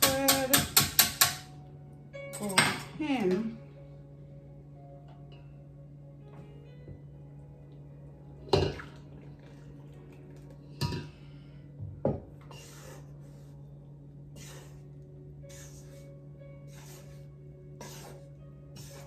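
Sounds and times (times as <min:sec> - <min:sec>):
spatula stirring batter: 0:17.8 - 0:19.0.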